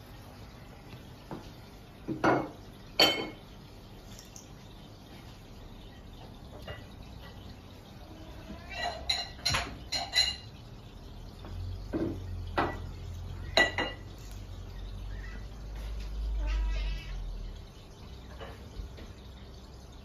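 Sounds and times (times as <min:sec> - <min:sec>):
dishes clinking: 0:02.0 - 0:03.5, 0:06.5 - 0:07.5, 0:08.4 - 0:10.6, 0:11.9 - 0:14.4, 0:18.2 - 0:19.1.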